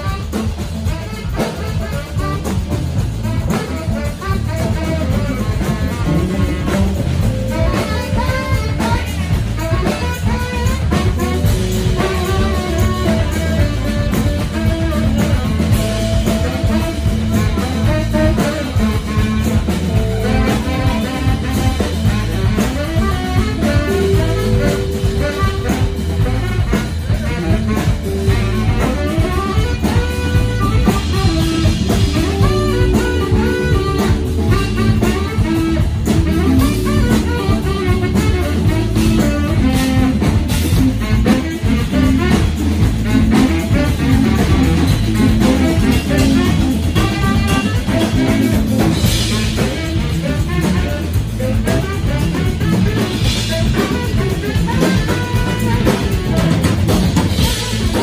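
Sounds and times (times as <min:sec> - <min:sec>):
bass guitar: 0:00.0 - 0:58.0
drums: 0:00.0 - 0:58.0
electric guitars: 0:00.0 - 0:58.0
tenor saxophone: 0:00.0 - 0:58.0.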